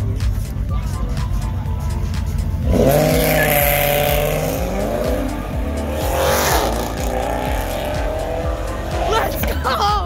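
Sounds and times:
car engine revving: 1.8s - 9.9s.

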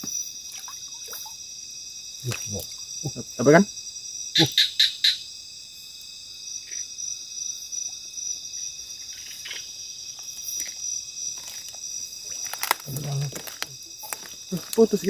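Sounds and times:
insects trilling: 0.0s - 15.0s
hands splashing in shallow water: 2.2s - 2.7s.

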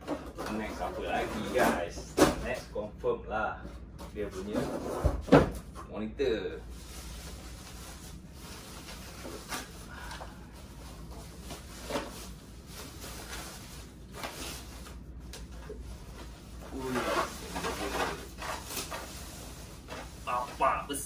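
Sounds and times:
wrapping sheets rustling and crinkling: 6.6s - 20.9s.

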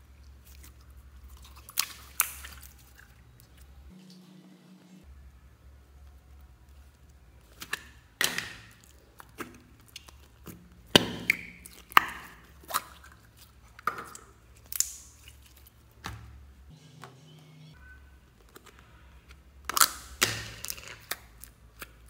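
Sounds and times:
plastic jar opening: 18.4s - 22.0s.

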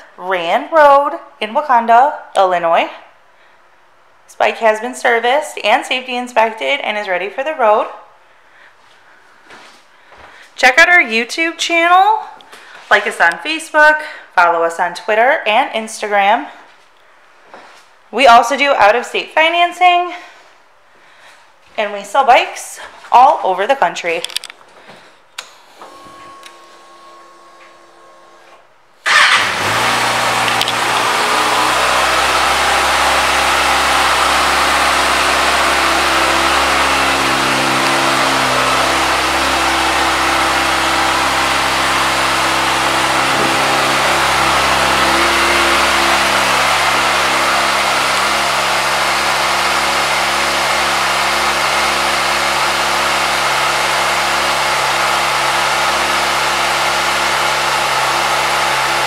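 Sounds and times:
motorcycle engine starting and idling: 25.4s - 59.0s.

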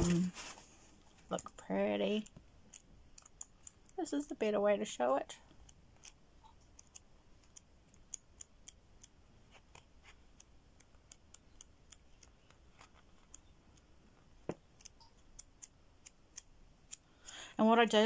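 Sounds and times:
paper pages leafed through: 0.0s - 1.4s.

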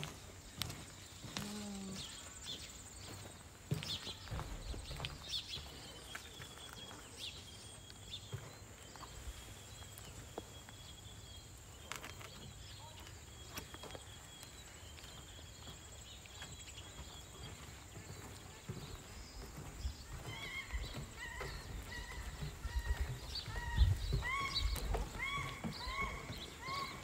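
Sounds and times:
low wind rumble: 21.8s - 26.4s.

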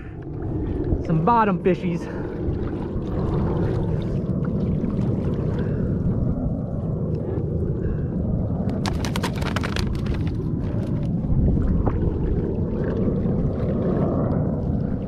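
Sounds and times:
wind buffeting microphone: 0.0s - 15.0s
water sloshing against kayak: 2.2s - 6.3s, 8.7s - 14.9s.

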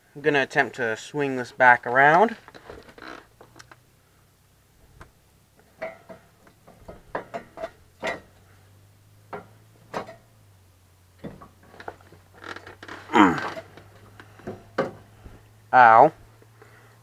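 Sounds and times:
metal steering parts clinking: 5.6s - 8.4s, 9.3s - 10.3s.

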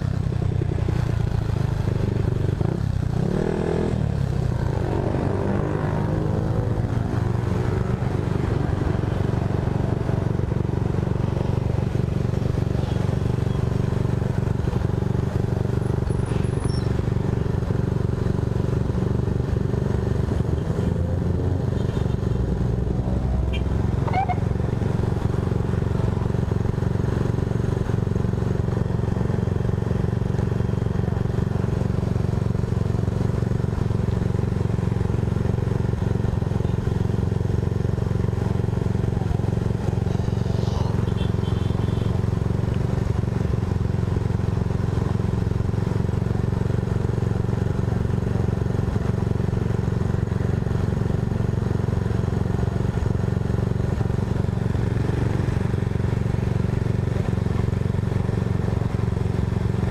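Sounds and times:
scooter engine idling: 23.8s - 59.9s.

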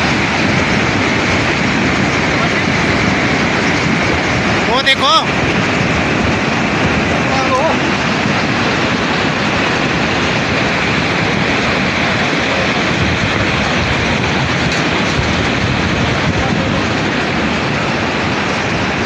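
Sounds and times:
rockfall rushing rumble: 0.0s - 19.0s.

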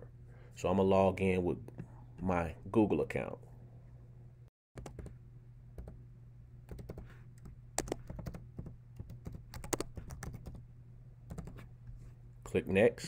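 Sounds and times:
low electrical hum: 0.0s - 13.0s
keyboard typing clicks: 4.8s - 5.1s, 6.7s - 10.6s.

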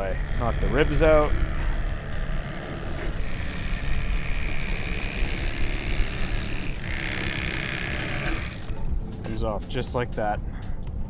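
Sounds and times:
low rumble of wind: 0.0s - 7.7s
electric knife motor whirring: 0.0s - 9.1s.

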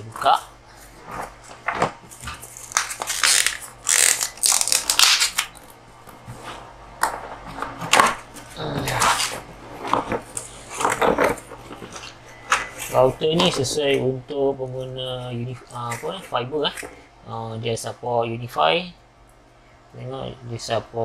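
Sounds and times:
plastic wrap crinkling: 1.2s - 5.7s.

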